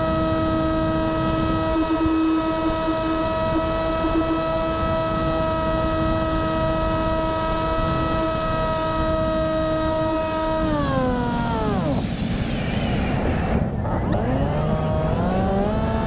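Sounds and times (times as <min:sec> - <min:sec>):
electric motor and propeller whining: 0:00.0 - 0:16.0
wind rush: 0:10.5 - 0:15.3.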